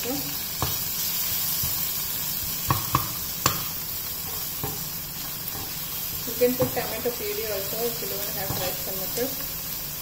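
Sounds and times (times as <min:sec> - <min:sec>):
vegetables sizzling in oil: 0:00.0 - 0:10.0
spatula scraping and knocking pan: 0:02.6 - 0:07.1.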